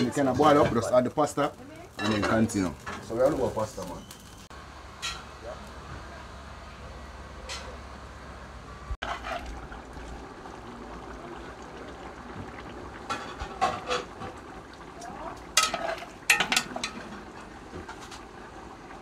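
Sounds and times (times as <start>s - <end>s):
pot boiling and bubbling: 0.0s - 19.0s
dog barking: 5.4s - 5.7s
metal spoon stirring pot: 15.5s - 17.2s.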